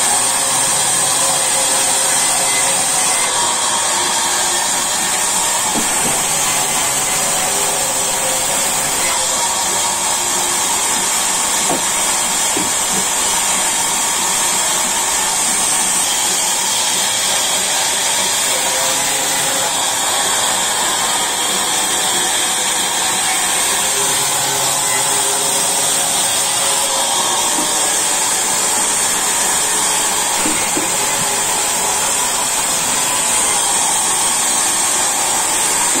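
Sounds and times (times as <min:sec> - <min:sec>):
band saw running: 0:00.0 - 0:36.0.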